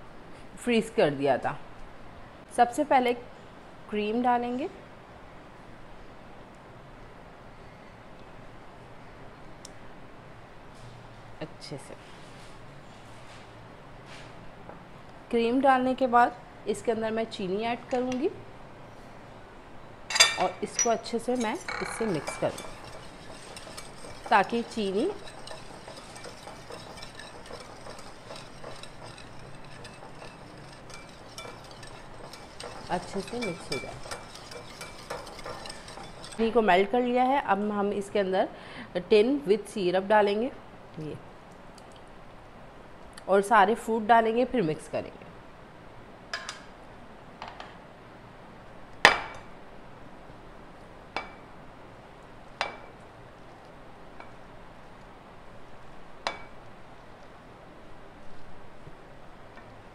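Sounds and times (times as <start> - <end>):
wire whisk beating in a bowl: 20.2 - 36.6.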